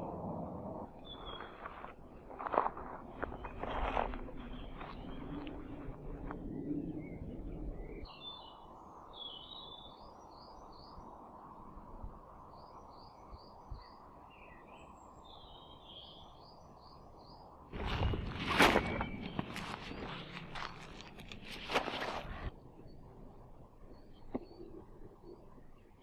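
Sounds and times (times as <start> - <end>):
songbirds chirping: 0.9 - 26.0
rustling noise: 1.1 - 6.4, 17.7 - 22.5.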